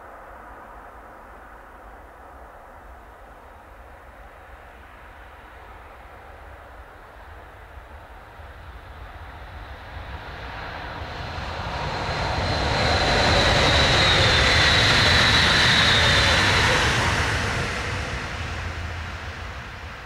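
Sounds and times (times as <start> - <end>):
high train whine: 0.0 - 20.0
train passing rumble: 7.3 - 20.0.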